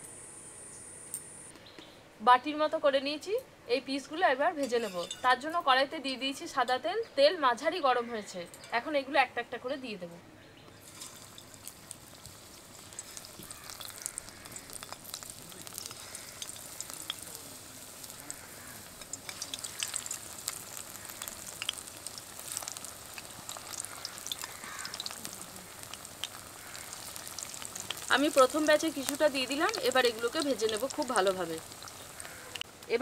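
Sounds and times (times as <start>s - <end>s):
oil sizzling and crackling: 10.8s - 33.0s.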